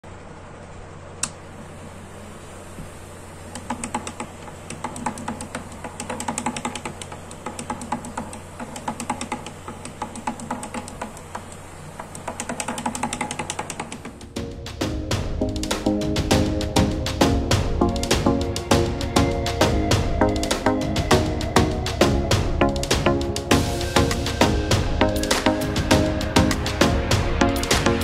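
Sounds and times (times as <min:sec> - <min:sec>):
fan ticking and rattling: 0:00.0 - 0:28.0
small fan humming: 0:00.0 - 0:28.0.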